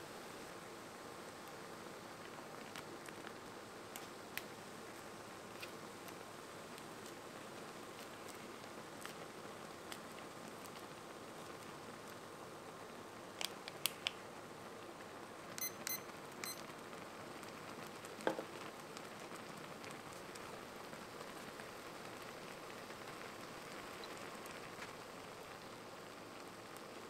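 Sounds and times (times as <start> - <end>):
kitchen timer beeps: 15.6 - 16.6.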